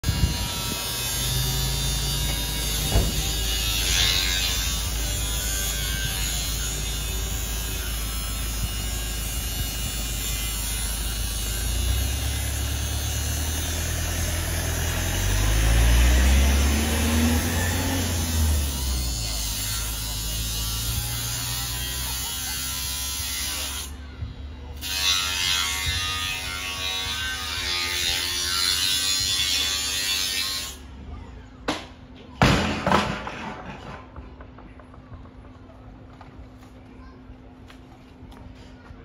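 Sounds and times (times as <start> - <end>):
engine droning: 0.2 - 21.3.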